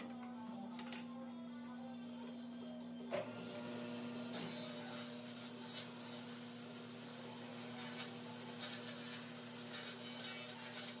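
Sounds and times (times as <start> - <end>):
table saw cutting plywood: 3.2 - 11.0.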